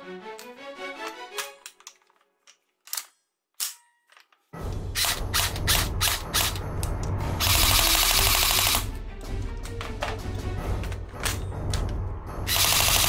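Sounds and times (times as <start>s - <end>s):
plastic clicks of toy rifle: 0.4s - 4.4s.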